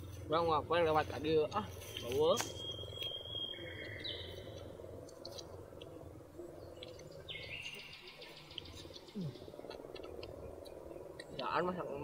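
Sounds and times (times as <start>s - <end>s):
insects chirring: 0.0s - 12.0s
low pulsing frog chorus: 0.0s - 12.0s
raspy pulsed call: 1.8s - 4.8s.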